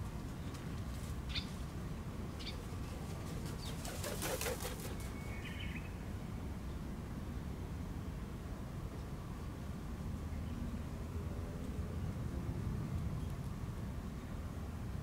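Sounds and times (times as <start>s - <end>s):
pigeon wings flapping: 3.2s - 5.1s.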